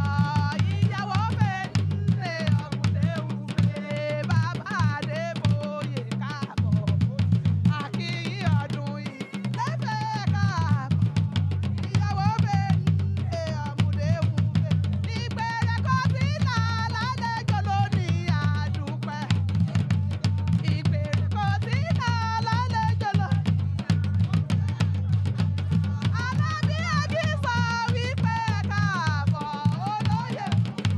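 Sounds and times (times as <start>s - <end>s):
driving drum beat: 0.0s - 30.9s
woman singing: 0.0s - 30.9s.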